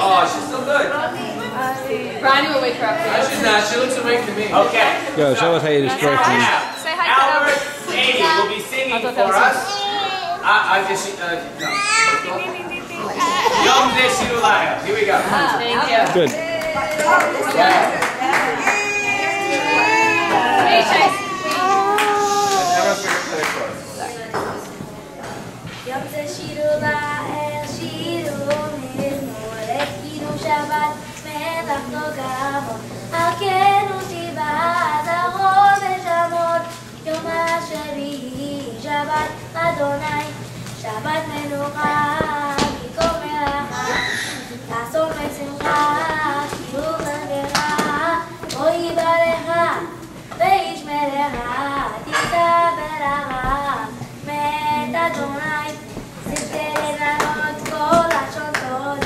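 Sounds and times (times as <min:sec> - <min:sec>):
boy singing: 0:25.9 - 0:59.0.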